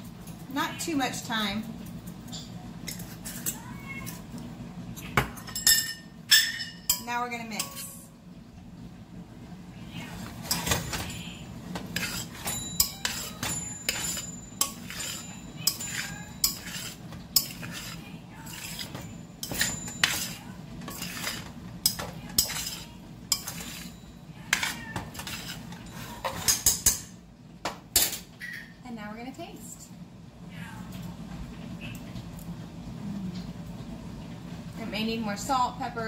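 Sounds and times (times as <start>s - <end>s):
metal spoon scraping a pot: 11.8s - 27.0s.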